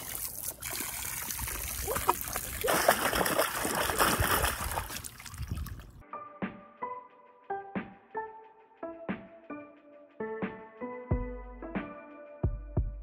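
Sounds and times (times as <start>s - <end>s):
dog splashing water: 0.0s - 6.0s.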